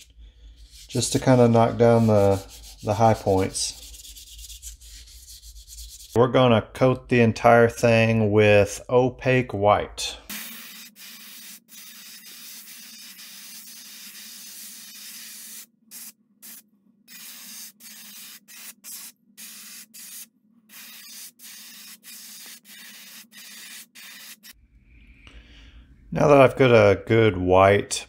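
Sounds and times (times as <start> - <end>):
airbrush spraying hiss: 0.0 - 6.2, 10.3 - 24.6.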